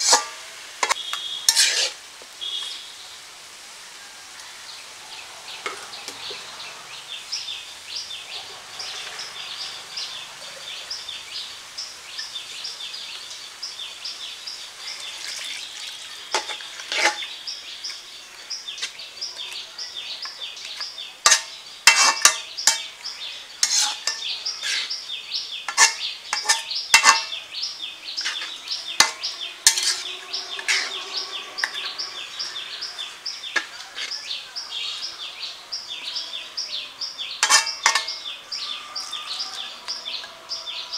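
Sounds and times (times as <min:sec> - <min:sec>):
metal spatula scraping and clanking: 0:00.0 - 0:02.0, 0:16.3 - 0:17.3, 0:21.2 - 0:23.0, 0:23.6 - 0:25.0, 0:25.7 - 0:27.4, 0:28.2 - 0:34.2, 0:37.4 - 0:38.3
curry sizzling in a pan: 0:00.0 - 0:35.2.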